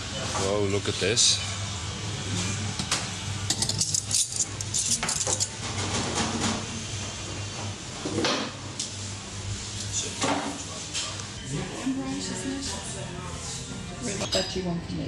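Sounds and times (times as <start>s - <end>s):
cutlery and crockery clinking: 2.8s - 5.6s, 14.1s - 14.6s.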